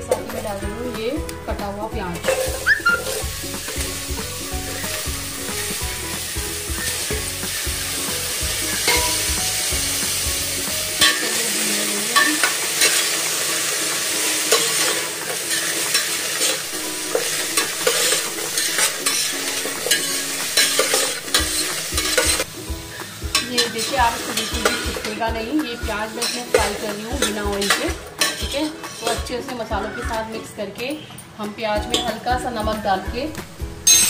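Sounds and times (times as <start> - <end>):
onions sizzling in a pan: 1.8 - 30.2
ladle scraping a pan: 2.2 - 7.6, 8.6 - 9.7, 12.2 - 25.2, 25.8 - 30.1.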